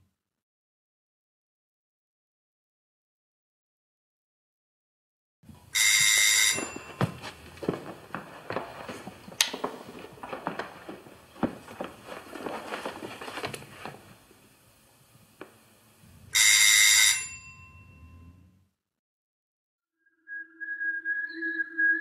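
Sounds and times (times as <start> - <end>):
bell ringing: 5.8 - 7.4, 16.4 - 18.4.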